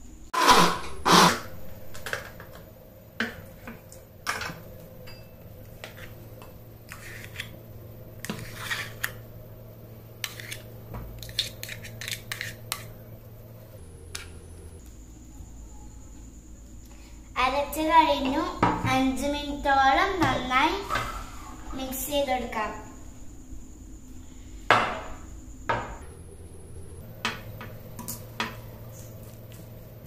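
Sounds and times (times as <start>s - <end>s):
metal clinking on glass: 5.0s - 5.4s
spoon scraping a metal jar: 6.9s - 7.5s, 8.2s - 9.2s, 10.2s - 12.9s.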